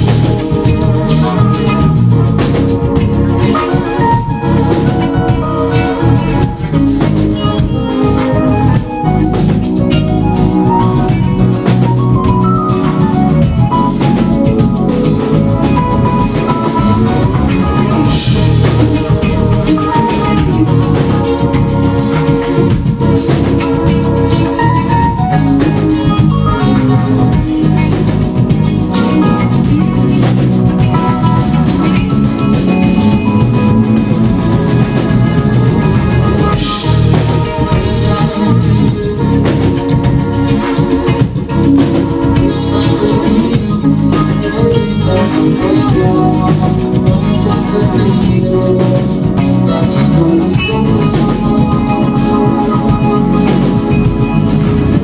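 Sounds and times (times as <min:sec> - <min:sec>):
funk band playing live: 0:00.0 - 0:55.0.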